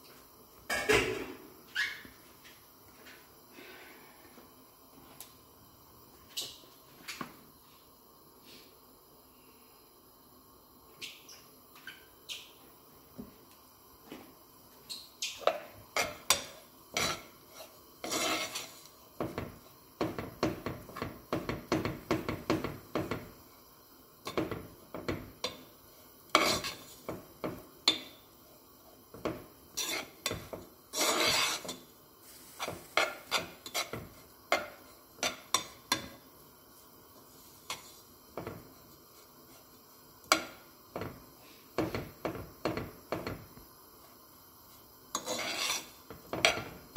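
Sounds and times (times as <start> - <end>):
metal spoon scraping a pot: 16.0 - 18.9, 26.3 - 27.0, 29.7 - 31.8, 32.6 - 35.7, 45.1 - 46.7.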